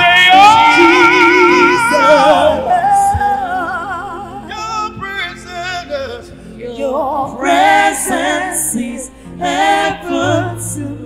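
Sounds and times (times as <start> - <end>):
band playing: 0.0 - 3.9
gospel voices singing: 0.0 - 11.0.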